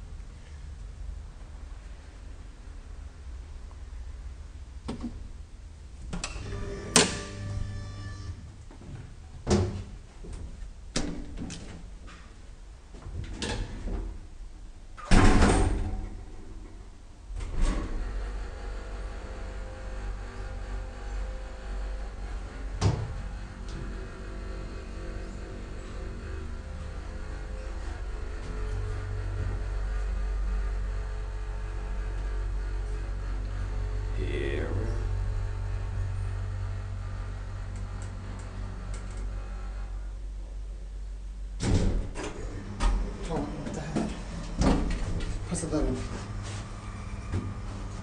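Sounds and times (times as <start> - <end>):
elevator mechanical hum: 0.0 - 48.0
elevator doors sliding: 6.1 - 8.5, 15.0 - 40.0, 41.6 - 48.0.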